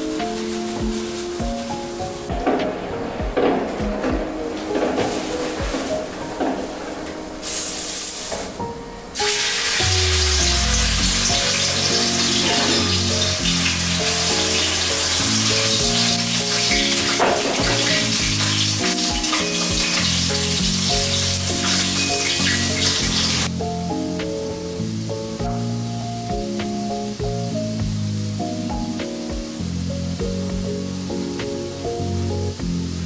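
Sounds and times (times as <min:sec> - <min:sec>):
chicken frying in hot oil: 0:00.0 - 0:02.4, 0:09.2 - 0:33.0.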